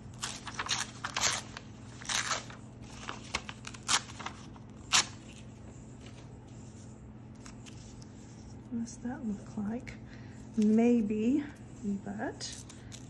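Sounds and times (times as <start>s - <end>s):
scissors snipping paper: 0.1s - 5.2s.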